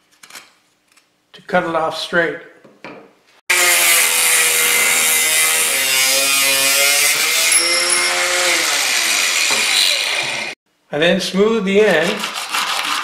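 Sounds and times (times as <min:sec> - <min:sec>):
angle grinder cutting metal: 0:03.5 - 0:10.6.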